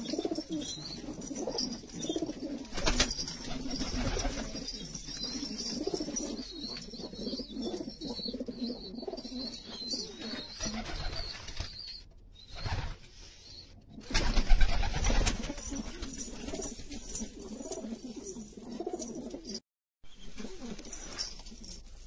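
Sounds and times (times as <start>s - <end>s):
pigeons cooing: 0.0s - 11.2s, 15.3s - 19.6s.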